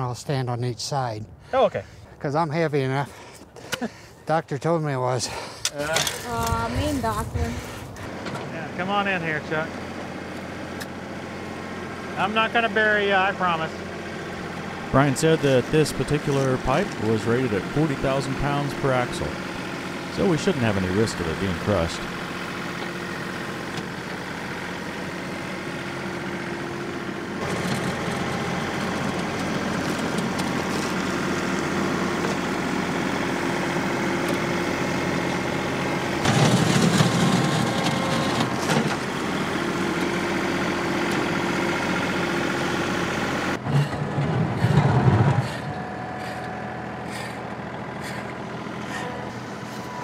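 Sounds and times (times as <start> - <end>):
tractor diesel engine running: 2.9 - 50.0.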